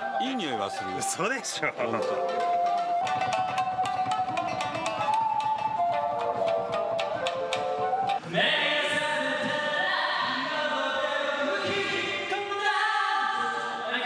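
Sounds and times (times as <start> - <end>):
pitched instrumental notes: 0.0 - 8.4
voices singing chant-like notes: 6.0 - 14.0.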